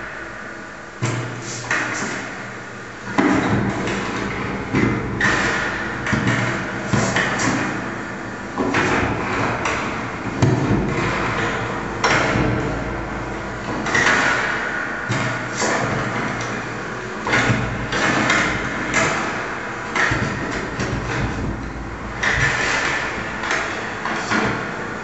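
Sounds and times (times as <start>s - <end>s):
steady low hum: 0.0s - 25.0s
reverberant knocks and thuds: 3.1s - 25.0s.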